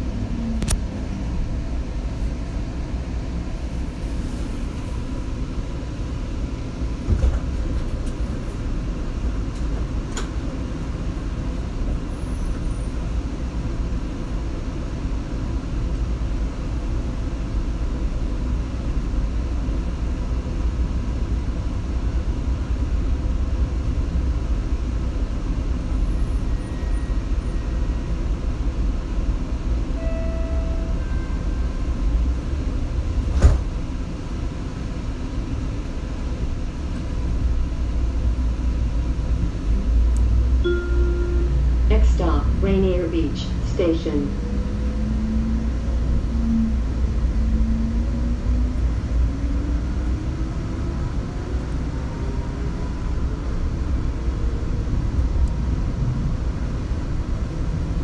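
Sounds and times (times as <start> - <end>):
train wheels rumbling on rail: 0.0 - 40.6.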